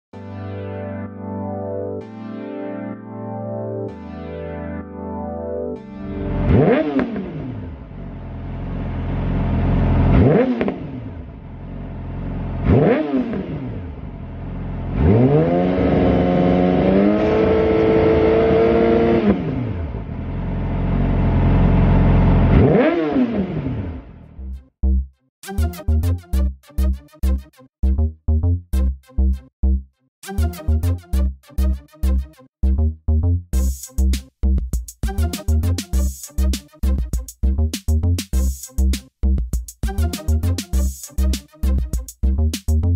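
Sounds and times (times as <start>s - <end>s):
motorcycle engine revving: 6.3s - 24.2s.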